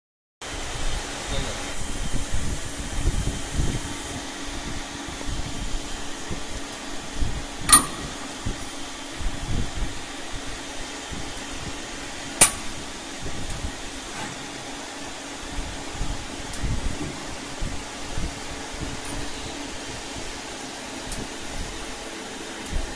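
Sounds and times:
machine humming: 0:00.5 - 0:22.9
sharp metallic clank: 0:07.7 - 0:08.8, 0:12.4 - 0:12.9.

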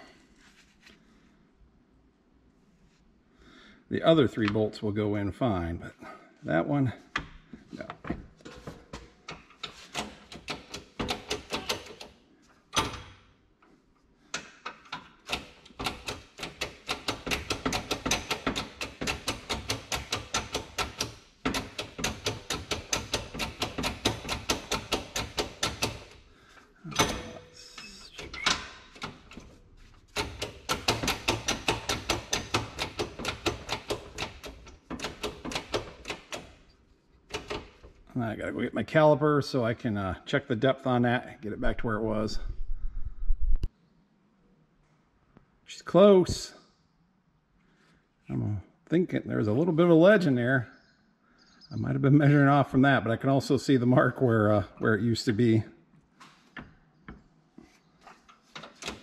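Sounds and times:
shop press rapid mechanical clicking: 0:09.9 - 0:12.1, 0:14.4 - 0:26.2, 0:30.1 - 0:36.6, 0:37.3 - 0:38.0.

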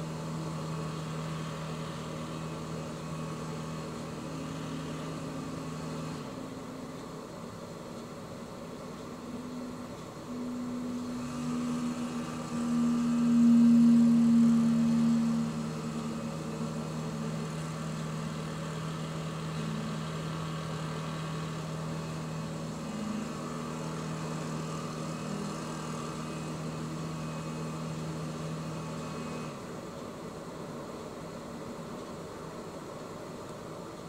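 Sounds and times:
boat engine humming: 0:00.0 - 0:34.0.

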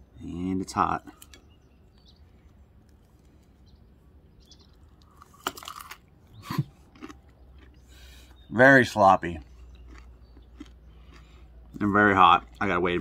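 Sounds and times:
crunchy biting into food: 0:04.7 - 0:08.4, 0:09.5 - 0:11.7.

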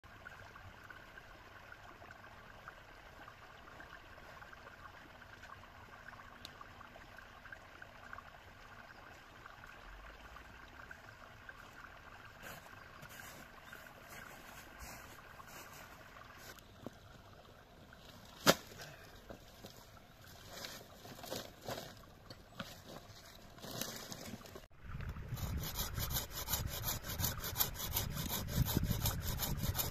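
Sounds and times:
trickling water: 0:00.0 - 0:29.9
sharp crack: 0:18.4 - 0:18.8.

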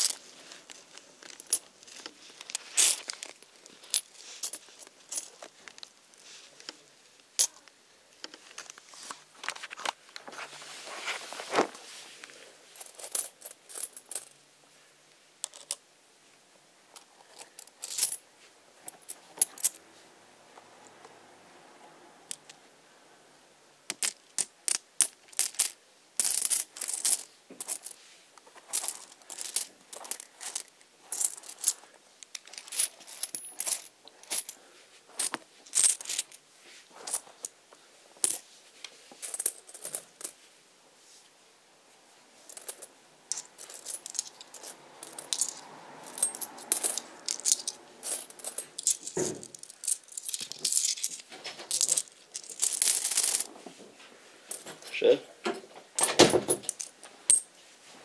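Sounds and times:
clinks of small hard objects: 0:00.0 - 0:05.9, 0:28.7 - 0:34.6, 0:42.5 - 0:53.5.

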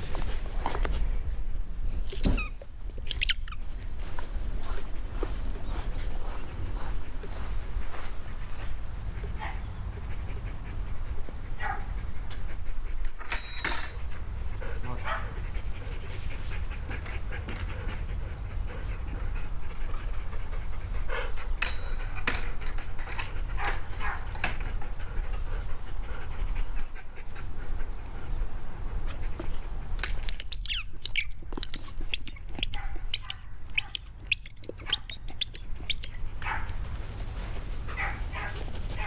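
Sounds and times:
rubber ball squeaking: 0:02.2 - 0:03.6, 0:30.2 - 0:36.2
dog panting: 0:04.5 - 0:13.2, 0:13.9 - 0:39.0.

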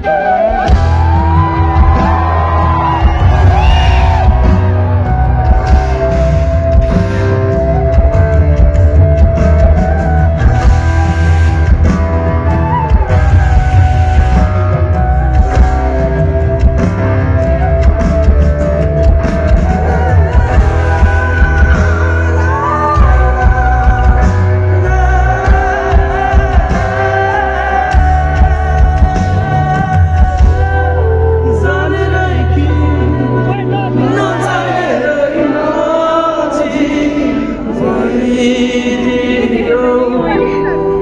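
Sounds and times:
live rock band playing loud: 0:00.0 - 0:35.7
person singing: 0:17.9 - 0:41.0.

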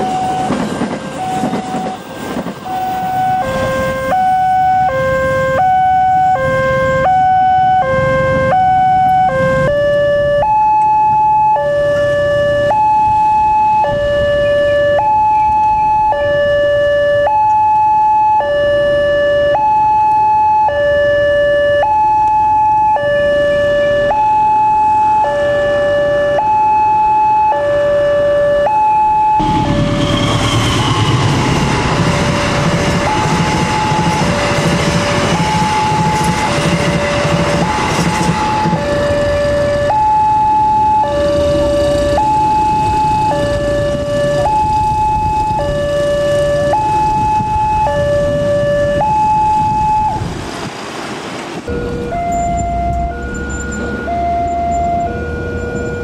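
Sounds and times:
train wheels rumbling on rails: 0:00.0 - 0:05.3, 0:29.4 - 0:40.2, 0:40.8 - 0:56.0
two-tone crossing alarm: 0:00.0 - 0:50.2, 0:51.7 - 0:56.0.

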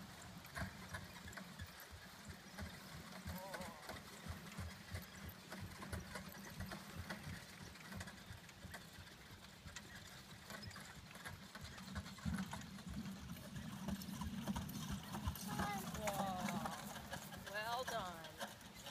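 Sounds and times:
horse hooves trotting on grass: 0:00.0 - 0:18.9.

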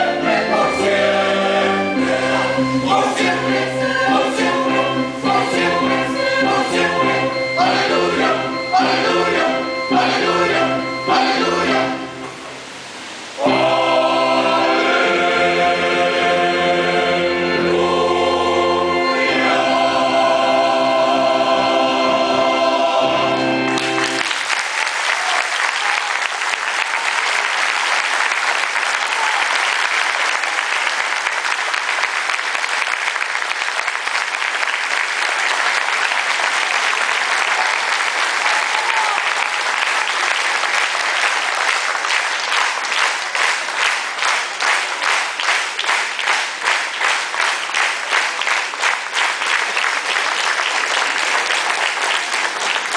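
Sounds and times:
rhythmic clapping in unison: 0:02.0 - 0:11.8, 0:23.7 - 0:52.9
audience applauding: 0:23.7 - 0:52.9.

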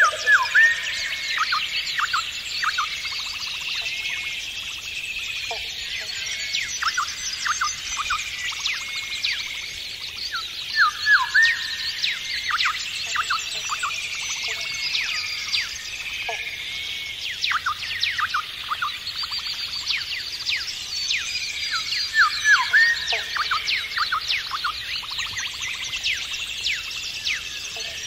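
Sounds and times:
birds chirping and whistling: 0:00.0 - 0:28.0.

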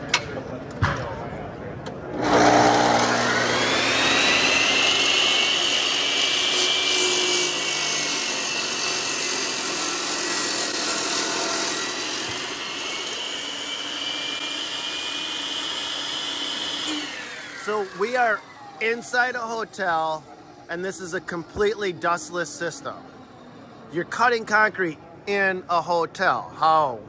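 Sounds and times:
saw blade grinding concrete: 0:02.2 - 0:19.7
masonry saw motor whine: 0:02.2 - 0:23.2.

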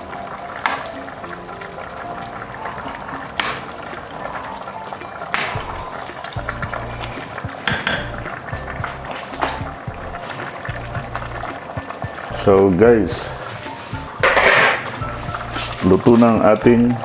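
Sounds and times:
sauce bubbling: 0:00.0 - 0:17.0
spatula knocking against pot: 0:07.3 - 0:08.4
spatula scraping metal pot: 0:13.2 - 0:16.5.

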